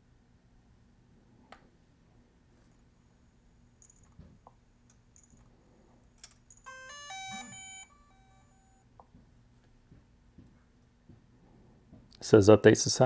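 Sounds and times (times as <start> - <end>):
electronic chime beeps: 6.6 - 8.8.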